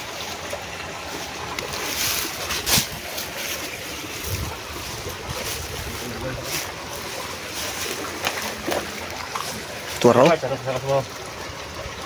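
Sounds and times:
wind on microphone: 4.1 - 6.8.

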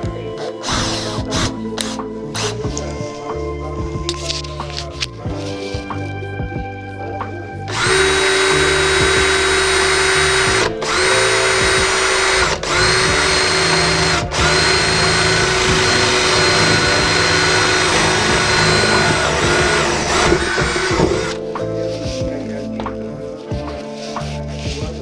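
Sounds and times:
electric power tool running: 7.7 - 21.4.

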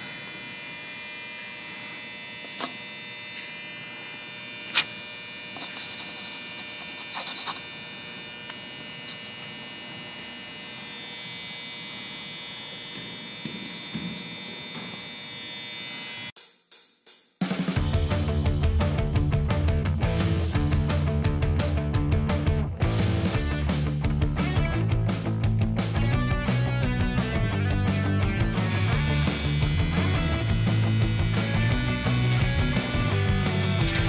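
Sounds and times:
steady electrical hum: 0.0 - 16.3
pencil scribbling on paper: 5.6 - 7.7, 8.8 - 9.5.

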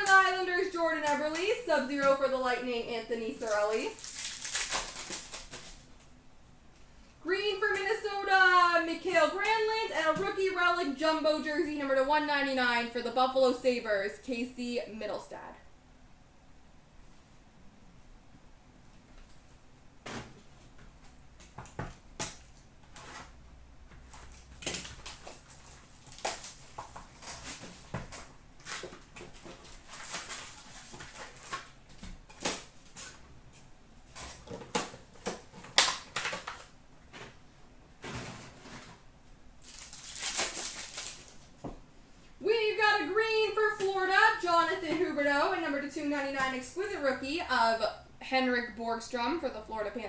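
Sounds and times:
card wrappers rustling: 3.4 - 5.9, 24.0 - 33.2, 39.6 - 41.6.

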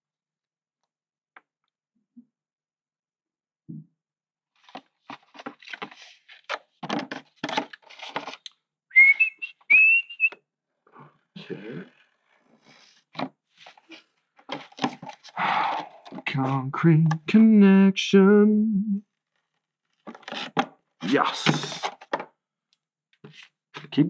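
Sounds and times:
plastic and tape crinkling: 7.2 - 8.5
short whistled notes: 8.9 - 10.4.

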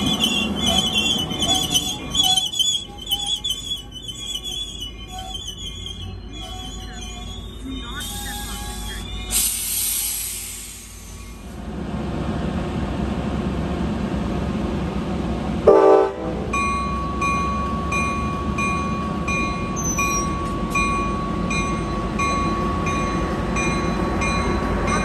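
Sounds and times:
train rumbling: 0.0 - 25.0
train horn blast: 15.6 - 16.5.

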